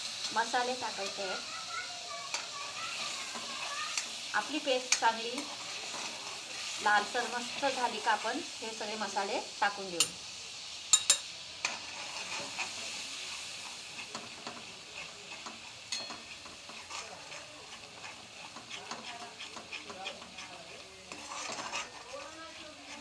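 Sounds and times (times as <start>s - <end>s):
spices sizzling in hot oil: 0.0s - 23.0s
spatula scraping a pan: 0.1s - 9.2s, 10.9s - 23.0s
sharp metal clinks: 15.9s - 16.3s.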